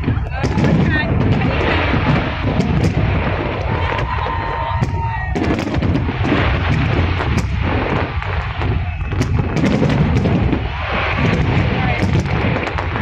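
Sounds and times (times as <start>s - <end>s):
fireworks cracking and banging: 0.0s - 13.0s
rumble of firework bursts: 0.0s - 13.0s.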